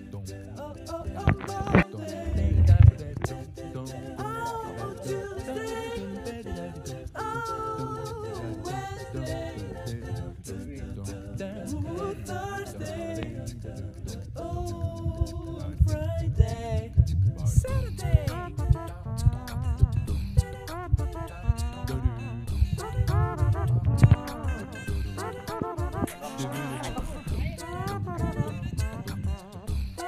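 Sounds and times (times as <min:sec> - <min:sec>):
song with singing voice: 0:00.0 - 0:30.0
uneven low rumble: 0:02.2 - 0:04.1, 0:08.4 - 0:25.2.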